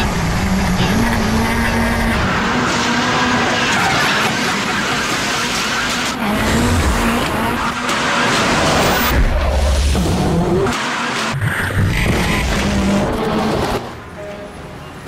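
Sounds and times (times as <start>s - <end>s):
car engine revving: 0.0s - 14.0s.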